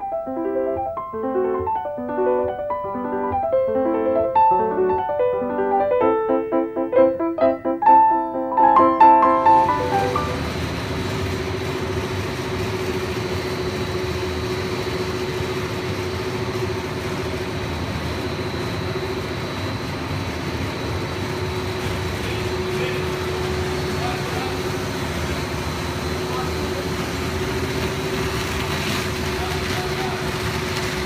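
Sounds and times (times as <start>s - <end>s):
machine drone with hum: 9.1s - 31.0s.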